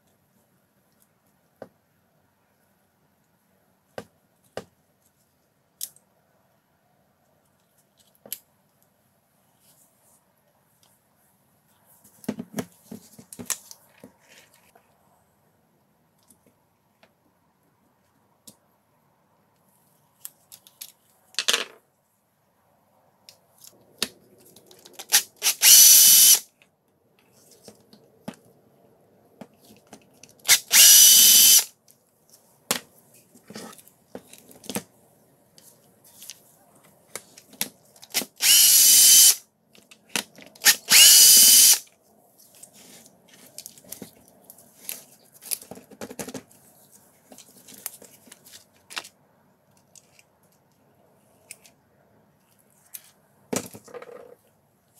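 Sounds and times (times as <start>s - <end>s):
power driver motor whirring: 25.4s - 26.4s, 30.6s - 31.6s, 38.4s - 39.4s, 40.6s - 41.8s.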